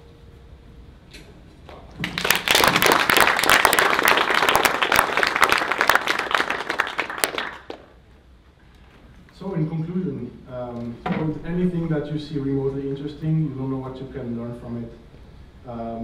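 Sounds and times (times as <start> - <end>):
audience applauding: 1.9 - 8.0.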